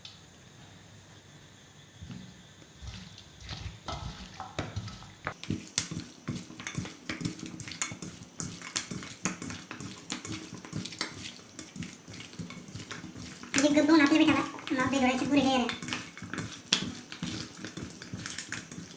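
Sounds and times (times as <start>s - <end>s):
wet squishes of mixing meat: 2.8s - 18.9s
fingers clicking on metal bowl: 5.4s - 18.9s.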